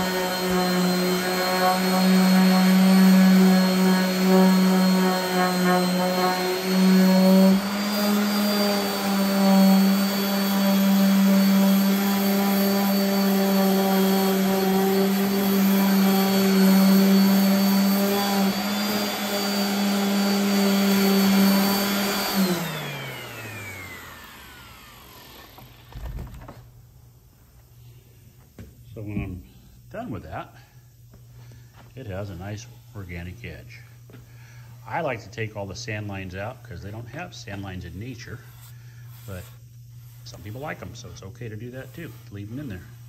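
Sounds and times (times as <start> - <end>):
orbital sander running: 0.0 - 26.0, 36.8 - 43.0.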